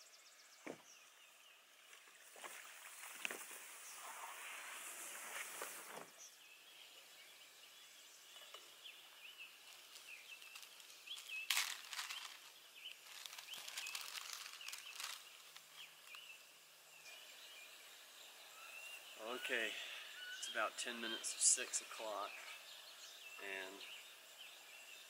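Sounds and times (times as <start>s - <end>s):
songbird chirps: 0.0s - 25.0s
packet and cookware rustling: 9.7s - 16.2s.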